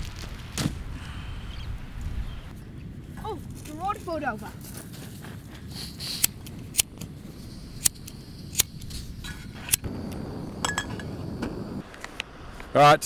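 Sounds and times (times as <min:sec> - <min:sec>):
gas burner hissing: 0:05.2 - 0:13.0.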